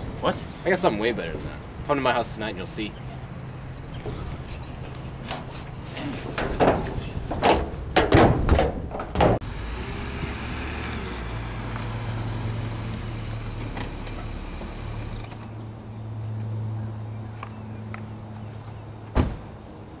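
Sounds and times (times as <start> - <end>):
loud knocks and bumps: 6.4 - 9.4
car engine idling: 9.4 - 15.4.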